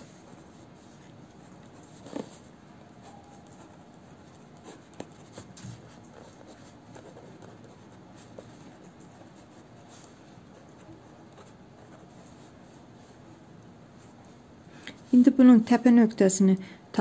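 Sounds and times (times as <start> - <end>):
pen scratching on paper: 3.0 - 12.3.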